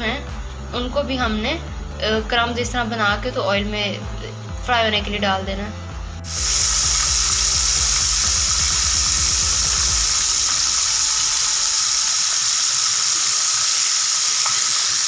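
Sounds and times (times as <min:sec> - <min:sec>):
chicken deep-frying in oil: 0:06.3 - 0:15.0.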